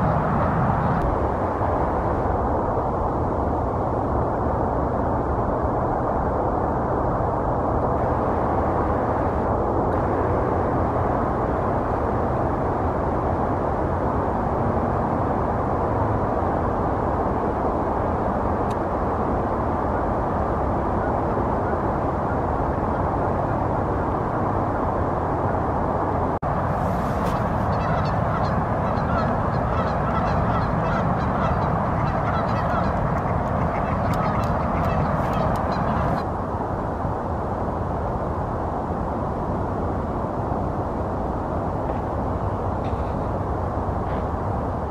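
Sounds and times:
low outdoor background noise: 0.0 - 44.9
repeated short bird calls: 27.7 - 36.2.

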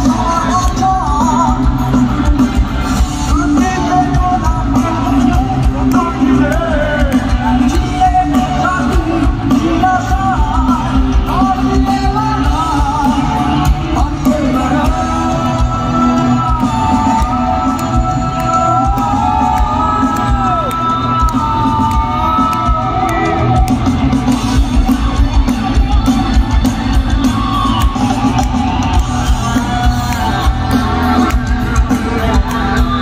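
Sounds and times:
person singing: 0.0 - 23.7
live rock band playing: 0.0 - 33.0.

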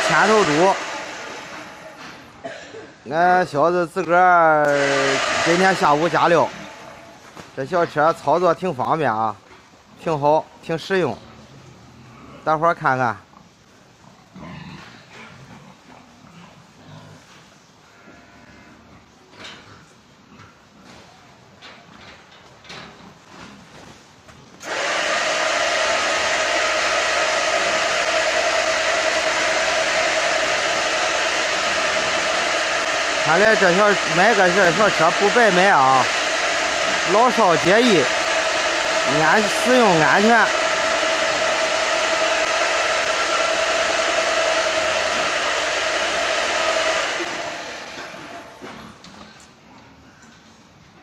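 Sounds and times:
motor whirring with a whine: 24.6 - 48.8.

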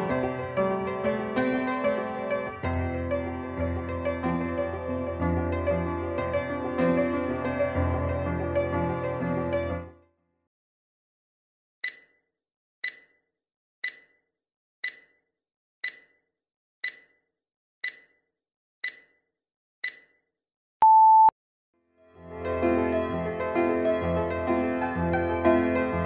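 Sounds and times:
sharp timer ticks: 11.8 - 12.1, 12.8 - 13.2, 13.8 - 14.2, 14.8 - 15.2, 15.8 - 16.2, 16.8 - 17.2, 17.8 - 18.2, 18.8 - 19.2, 19.8 - 20.1
short beep: 20.8 - 21.3.

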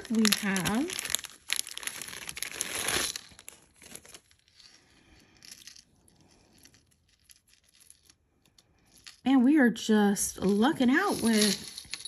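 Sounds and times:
packaging crinkling: 0.0 - 9.2.

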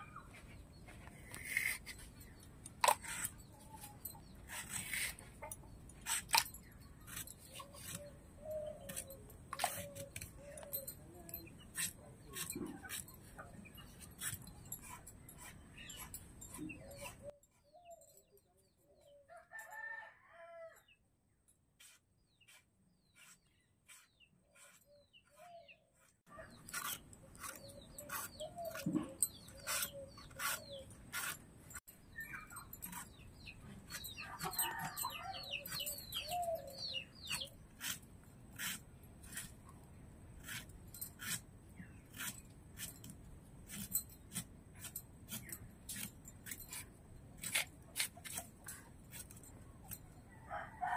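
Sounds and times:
blade scraping potato: 1.2 - 5.4, 6.0 - 17.3, 21.8 - 39.6, 40.4 - 50.0
rooster crowing: 50.4 - 50.9.

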